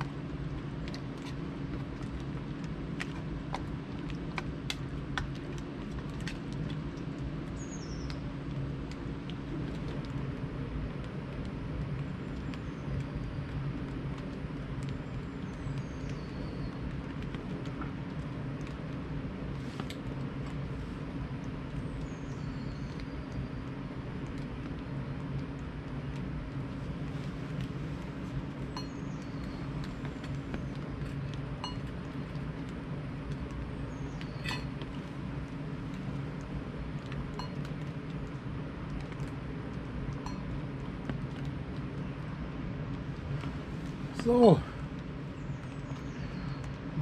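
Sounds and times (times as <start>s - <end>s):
low hum: 0.0s - 47.0s
metal cookware clinking: 34.4s - 34.7s.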